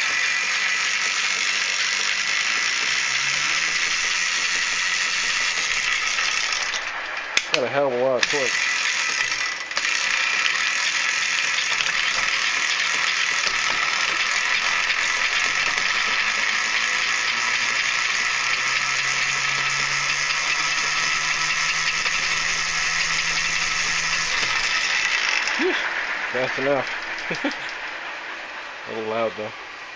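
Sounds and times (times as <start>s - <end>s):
electric bike motor running: 0.0s - 29.9s
low hum: 13.5s - 29.9s.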